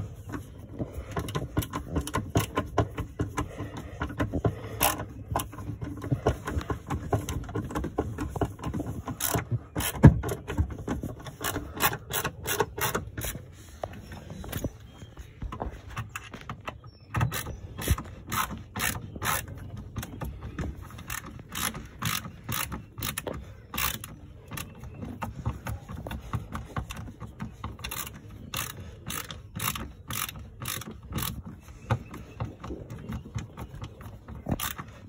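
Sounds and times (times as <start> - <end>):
ratchet tool clicking: 21.0 - 24.1, 27.8 - 31.4.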